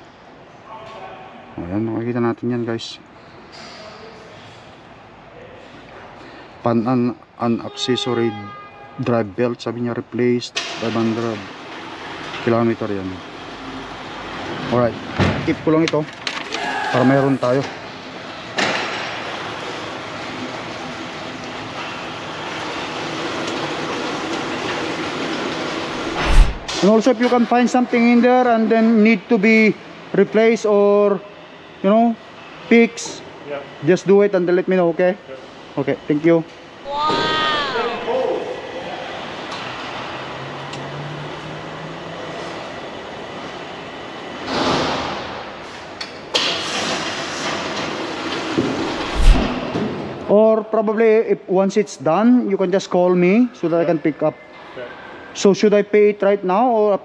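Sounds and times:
mechanical rumble and hiss: 0:25.8 - 0:27.1
rushing swell: 0:25.9 - 0:26.8, 0:48.8 - 0:49.7.

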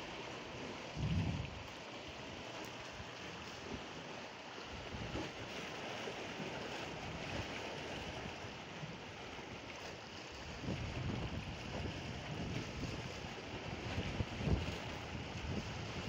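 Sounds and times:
wind rumbling on microphone: 0:00.9 - 0:01.8, 0:04.7 - 0:05.5, 0:10.3 - 0:16.0.

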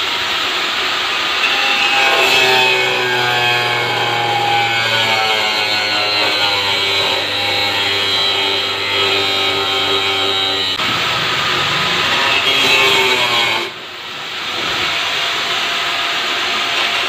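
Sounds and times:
angle grinder cutting plastic: 0:01.4 - 0:13.8.

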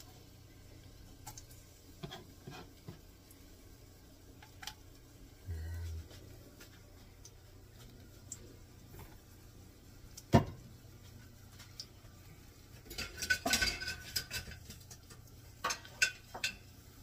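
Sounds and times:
brief low hum: 0:05.4 - 0:06.4.

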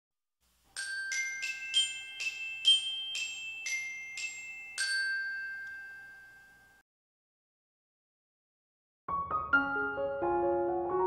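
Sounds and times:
chime jingle: 0:00.7 - 0:06.8.

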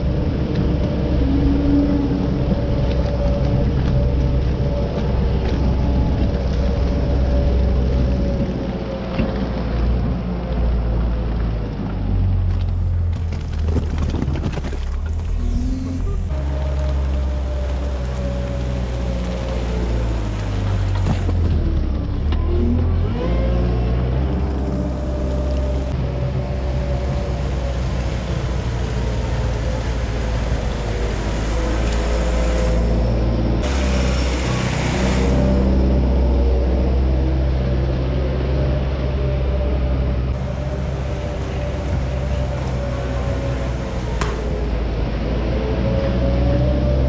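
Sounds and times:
loader engine running: 0:00.0 - 0:47.0.

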